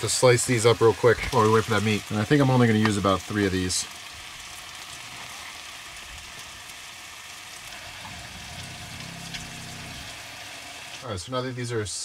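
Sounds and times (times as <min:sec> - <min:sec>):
meat sizzling in oil: 0:00.0 - 0:11.1
low hum: 0:07.7 - 0:10.8.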